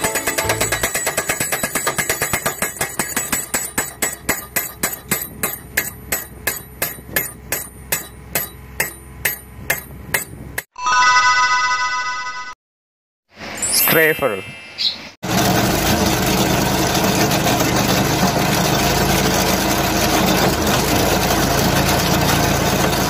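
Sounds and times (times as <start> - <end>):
pile driver hammer striking steel: 0.0 - 10.7
bright chime: 10.8 - 12.6.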